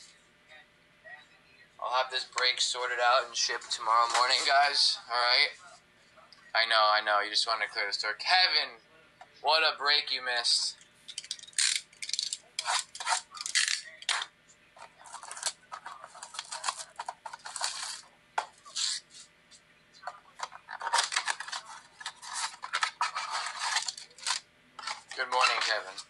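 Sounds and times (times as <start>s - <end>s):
plastic wrap and cardboard tearing: 11.2s - 14.2s, 15.0s - 18.0s, 20.4s - 26.0s.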